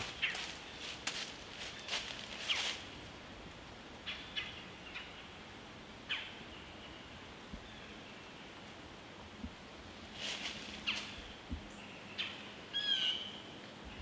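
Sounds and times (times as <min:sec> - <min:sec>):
hooves crunching dry leaves: 0:00.0 - 0:03.0, 0:10.1 - 0:11.2.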